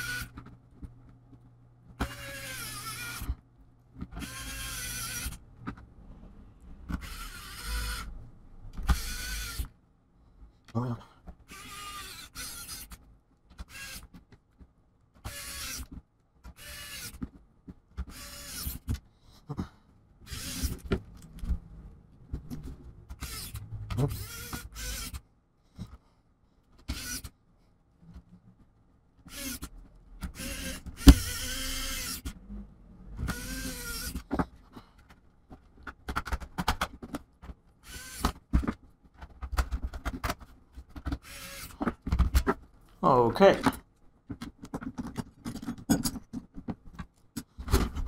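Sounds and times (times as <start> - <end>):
electric screwdriver motor: 0.0 - 0.3, 2.0 - 3.4, 4.2 - 5.4, 7.0 - 8.1, 8.9 - 9.7, 11.5 - 12.9, 13.7 - 14.1, 15.3 - 15.9, 16.6 - 17.2, 18.1 - 18.9, 20.3 - 20.8, 23.1 - 25.2, 26.9 - 27.3, 29.3 - 29.7, 30.3 - 32.4, 33.2 - 34.2, 37.8 - 38.4, 41.2 - 41.8.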